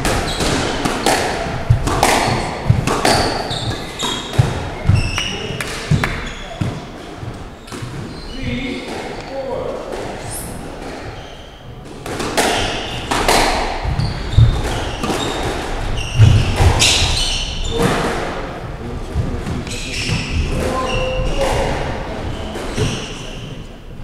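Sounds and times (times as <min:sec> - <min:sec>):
squash ball struck by rackets: 0:00.0 - 0:08.1, 0:09.9 - 0:18.4
shoe squeaks: 0:00.2 - 0:00.8, 0:02.2 - 0:09.4, 0:10.2 - 0:11.8, 0:13.8 - 0:17.9, 0:19.7 - 0:21.4, 0:22.3 - 0:23.7.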